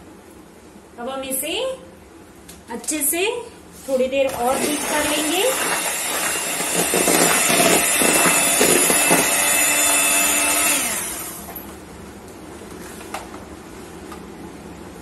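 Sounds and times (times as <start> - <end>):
electric hand mixer running: 4.3 - 11.6.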